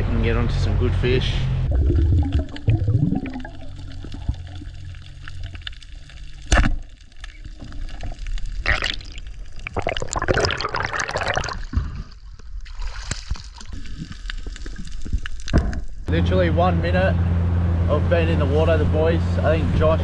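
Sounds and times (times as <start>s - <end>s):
boat motor low hum: 15.6s - 20.0s.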